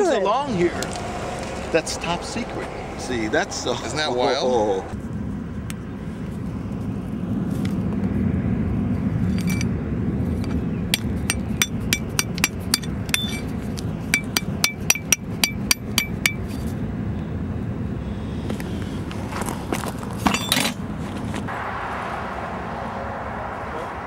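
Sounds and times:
steady low rumble: 0.3s - 24.0s
ringing metallic clinks: 11.0s - 13.5s, 14.1s - 16.6s.

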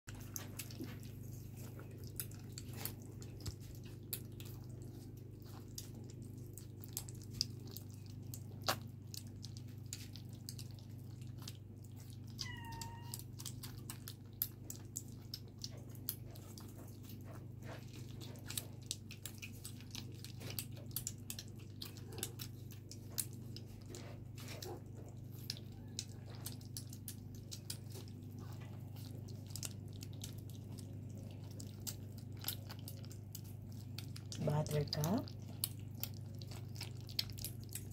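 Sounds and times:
kittens lapping wet food: 0.1s - 37.9s
kitten mewing: 12.3s - 13.3s.

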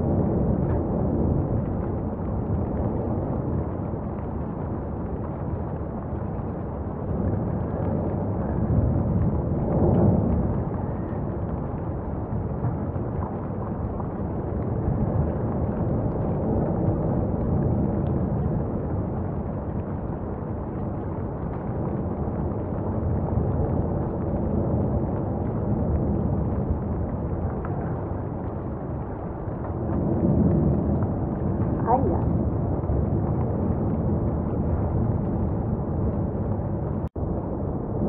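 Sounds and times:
lava fountain low rumble: 0.0s - 38.0s.

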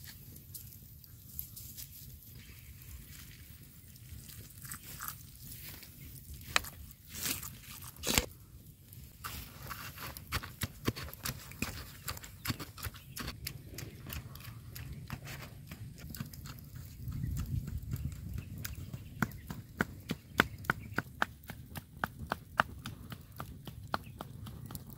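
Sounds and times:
pestle pounding in mortar: 10.3s - 16.9s.

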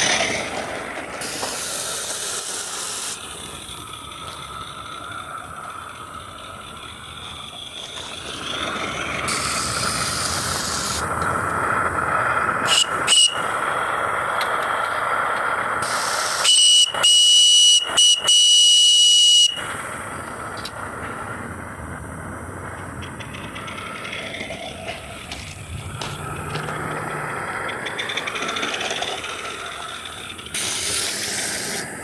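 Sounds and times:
steady steam hiss: 0.0s - 18.2s, 19.1s - 32.0s
steam whistle blasts: 12.6s - 13.6s, 15.8s - 19.7s.

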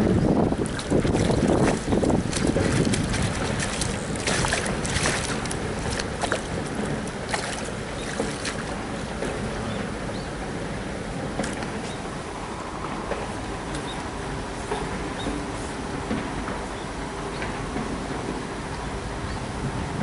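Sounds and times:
fish splashing in a net: 0.6s - 8.9s.

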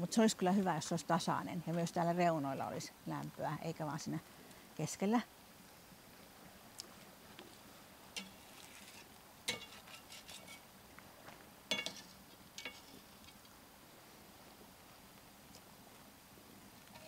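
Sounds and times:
metal utensil clinking on cookware: 9.5s - 10.6s, 11.7s - 12.9s.

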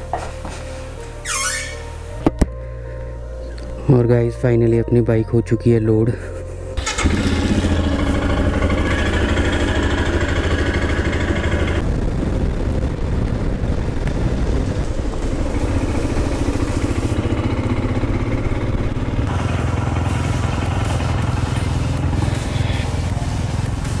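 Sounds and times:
motorcycle engine running: 6.8s - 24.0s.

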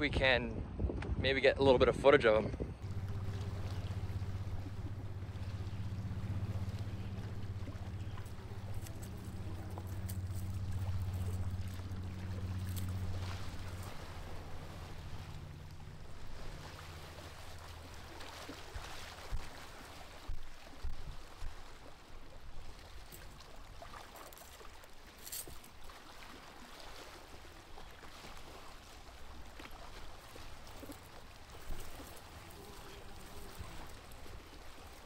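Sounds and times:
low steady hum: 2.7s - 20.1s
animals rustling in dry leaves: 2.8s - 19.5s, 24.0s - 26.3s, 29.2s - 35.0s
soft outdoor hiss: 30.0s - 35.0s.

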